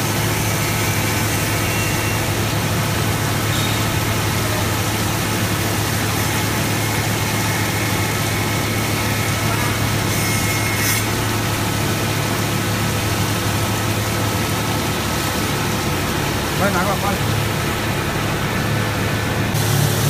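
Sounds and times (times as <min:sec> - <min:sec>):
saw blades cutting stone: 0:00.0 - 0:02.4, 0:05.7 - 0:11.6
hiss of cooling water: 0:00.0 - 0:20.0.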